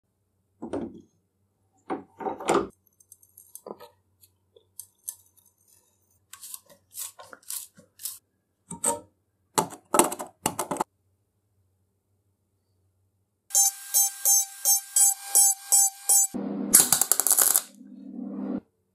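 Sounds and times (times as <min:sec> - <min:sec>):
hand tools scraping a screw: 0:04.8 - 0:08.2.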